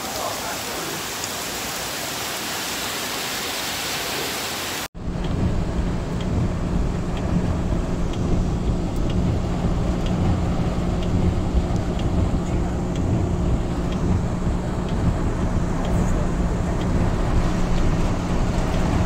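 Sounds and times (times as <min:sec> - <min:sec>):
heavy rain on pavement: 0:00.0 - 0:04.9, 0:06.4 - 0:19.0
car engine rumble: 0:05.0 - 0:19.0
faint ticking: 0:05.0 - 0:19.0.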